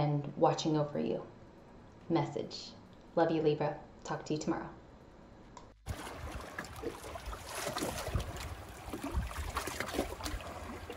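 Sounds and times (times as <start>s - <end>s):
small splashes: 5.8s - 10.9s
water lapping over rocks: 5.8s - 10.9s
wind on microphone: 7.8s - 10.4s.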